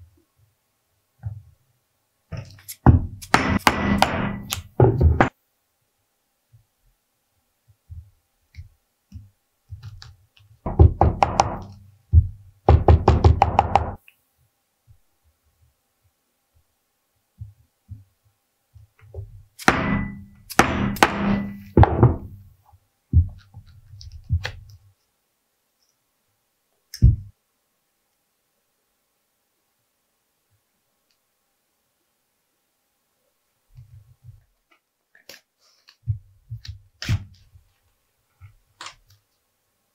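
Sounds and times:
mallet striking chisel: 0:02.8 - 0:05.3, 0:19.6 - 0:22.4.

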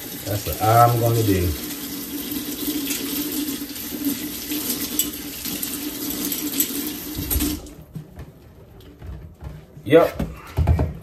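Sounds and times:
faucet running into sink: 0:00.0 - 0:07.8.

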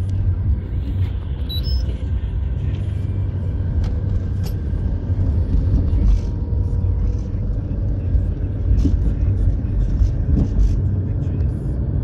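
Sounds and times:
car engine and tyre rumble: 0:00.0 - 0:12.0
short high beeps: 0:01.5 - 0:01.9.

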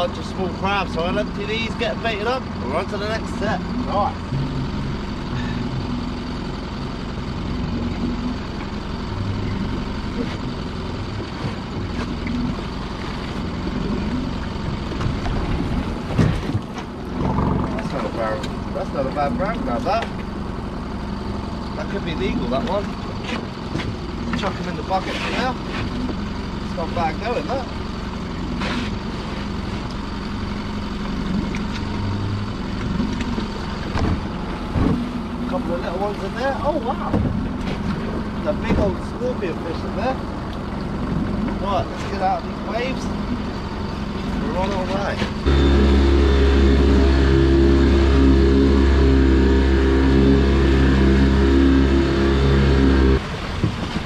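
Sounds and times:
boat engine idling: 0:00.0 - 0:54.0
motor humming: 0:45.4 - 0:53.5.

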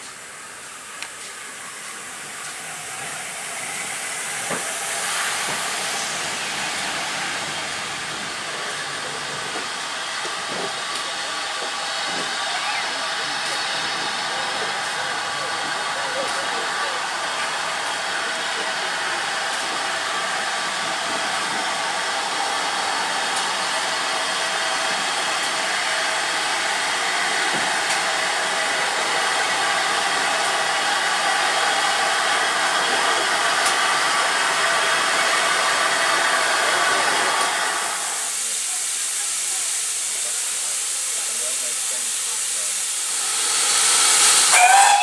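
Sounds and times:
steam locomotive hissing: 0:00.0 - 0:45.0
train wheels rumbling on rails: 0:00.0 - 0:45.0.

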